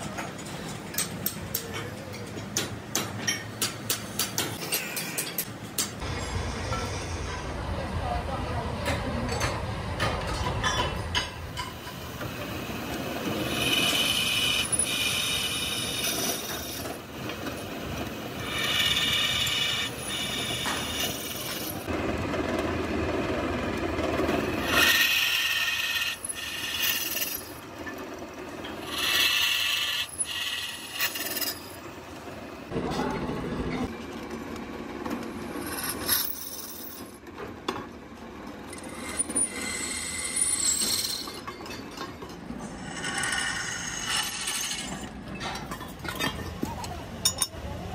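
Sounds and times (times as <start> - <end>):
drill bit scraping metal: 13.2 - 17.0, 18.4 - 21.9, 24.6 - 27.6, 28.8 - 31.8, 38.7 - 41.4, 42.6 - 45.1.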